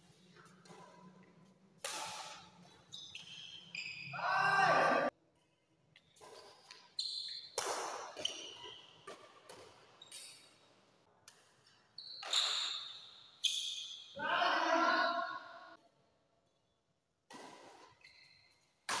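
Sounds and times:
rackets hitting shuttlecock: 1.8 - 3.3, 6.2 - 10.5, 17.3 - 18.0.

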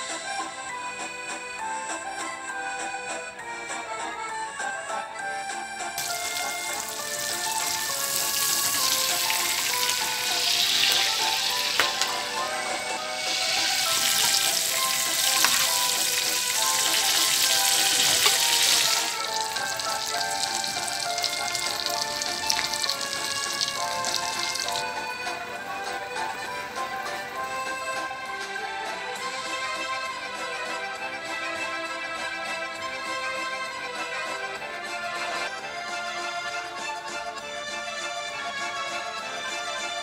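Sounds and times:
background music: 0.0 - 40.0
steak sizzling in a pan: 6.0 - 28.0.

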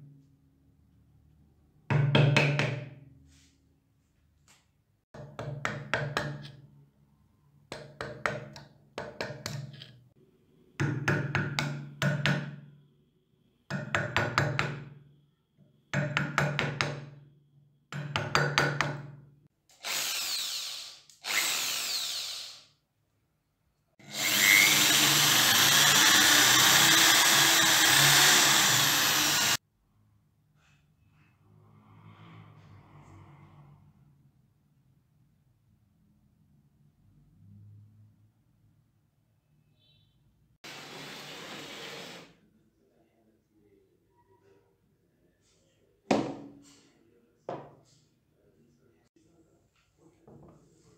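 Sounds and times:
power tool whirring: 19.8 - 22.7, 24.0 - 29.6
hand scraper rasping metal: 24.0 - 29.6.

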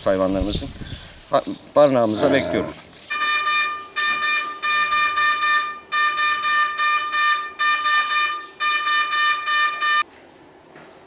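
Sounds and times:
pulsing electronic alarm tone: 3.1 - 10.0.

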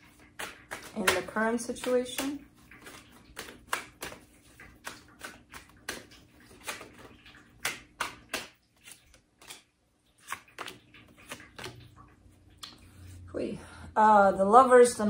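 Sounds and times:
cards being shuffled: 0.0 - 11.9.

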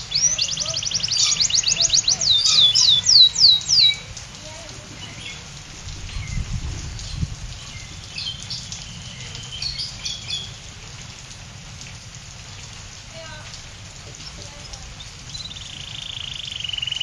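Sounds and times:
steady rain: 0.0 - 17.0
canary chirping: 0.1 - 4.0.

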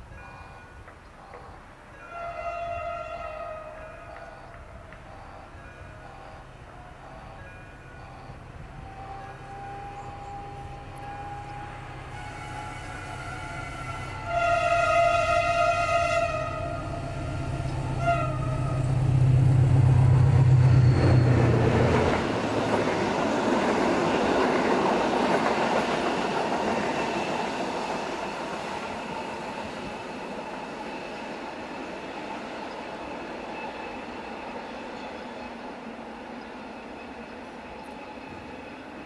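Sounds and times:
diesel locomotive engine drone: 0.0 - 39.0
locomotive horn: 2.0 - 21.8
train wheels rolling on rails: 3.2 - 39.0.

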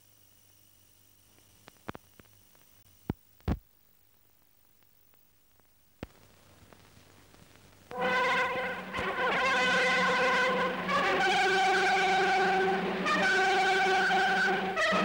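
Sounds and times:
film soundtrack hum and hiss: 0.0 - 15.0
sharp clicks and pops: 1.3 - 8.0.

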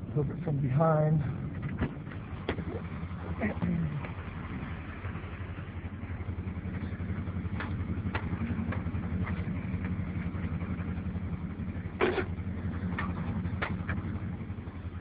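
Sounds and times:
tow truck engine running: 0.0 - 15.0.

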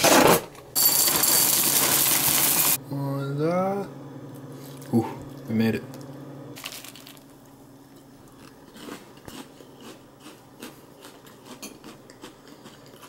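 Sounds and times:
milk pouring into cereal: 6.6 - 7.4
cereal chewing crunches: 6.6 - 7.5, 8.2 - 13.0.

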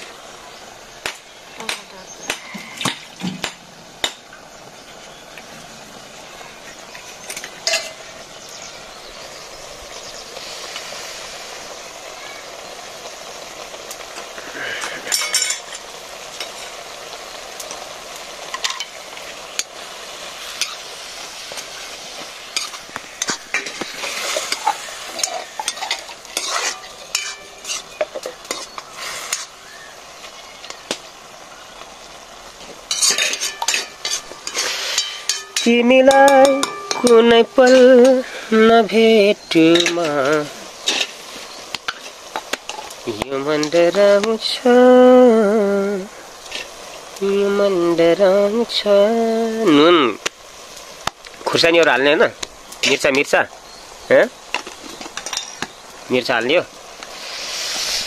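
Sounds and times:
vegetables sizzling in a wok: 0.0 - 58.0
ladle scraping and clinking on pan: 7.3 - 8.0, 22.6 - 29.5, 32.9 - 35.7.

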